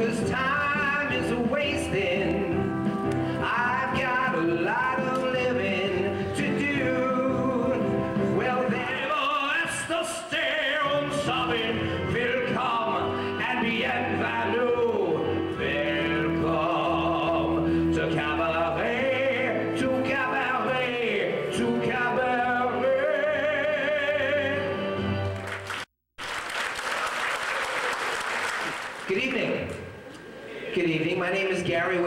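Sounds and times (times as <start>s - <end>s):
man singing into a microphone: 0.0s - 2.7s, 3.3s - 24.8s.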